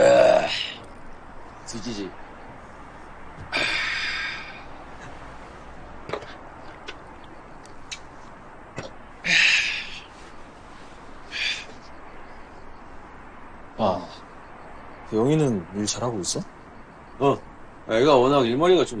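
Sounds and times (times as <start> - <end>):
breathy sigh: 3.5 - 4.7.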